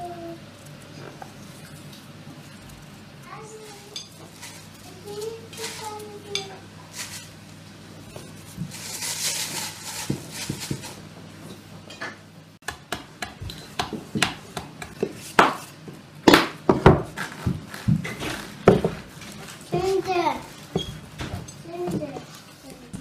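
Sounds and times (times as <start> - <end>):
dough rustling: 0.0 - 11.4, 13.3 - 23.0
rolling pin knocking on board: 12.6 - 15.6
rolling pin rolling dough on board: 12.6 - 22.3.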